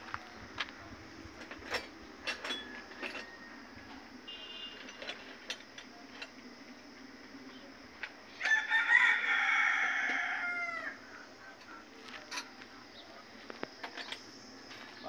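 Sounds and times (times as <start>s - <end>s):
rooster crowing: 2.5s - 4.1s, 8.4s - 11.9s.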